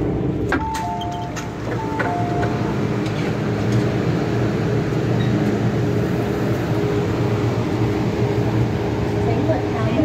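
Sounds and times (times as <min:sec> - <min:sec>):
train running hum: 0:00.0 - 0:10.0
two-tone train door chime: 0:00.5 - 0:03.3.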